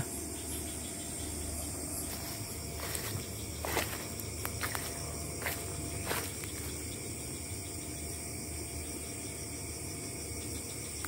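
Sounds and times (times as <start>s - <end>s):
night insects chorus: 0.0s - 11.0s
footsteps through leaf litter: 2.1s - 6.8s.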